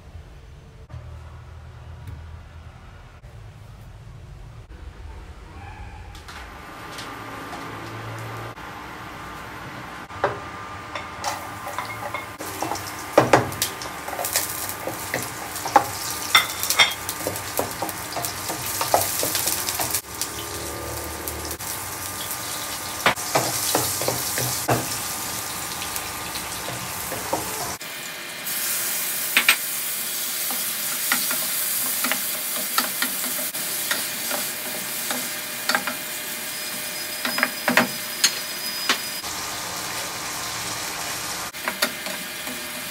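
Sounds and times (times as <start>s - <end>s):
food sizzling in oil: 10.9s - 42.9s.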